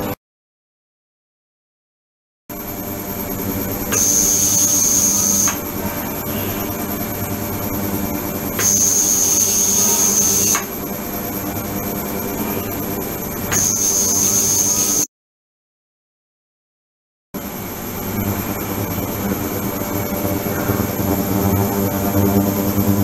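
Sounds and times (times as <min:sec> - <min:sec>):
high-pitched tone with hiss: 0:03.9 - 0:07.7, 0:08.6 - 0:10.7.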